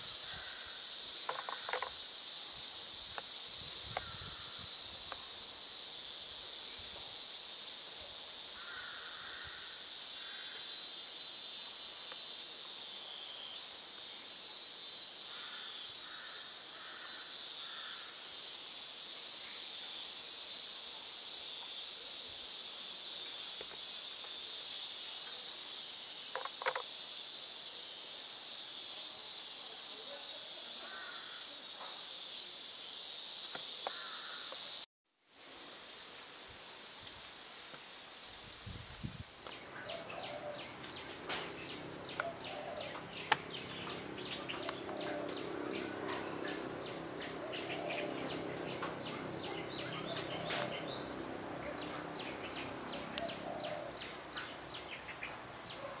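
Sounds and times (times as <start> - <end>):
insect chorus buzzing: 0.0 - 56.0
sharp click: 26.4 - 26.9.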